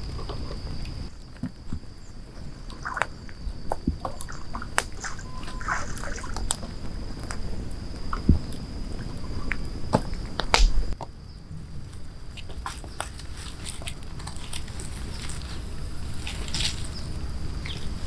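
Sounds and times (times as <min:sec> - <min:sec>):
thin high tone: 0:05.0 - 0:06.2
fire crackling: 0:06.0 - 0:18.0
shells popping in embers: 0:10.1 - 0:11.0.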